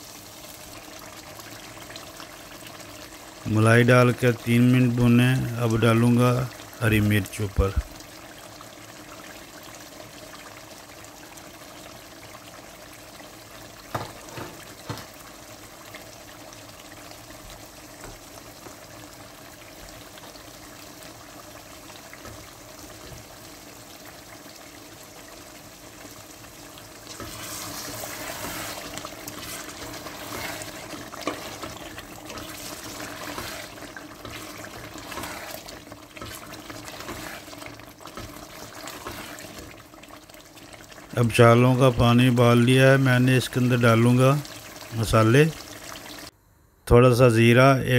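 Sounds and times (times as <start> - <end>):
curry sizzling and bubbling in pot: 0.0 - 46.4
spatula stirring: 27.0 - 41.1.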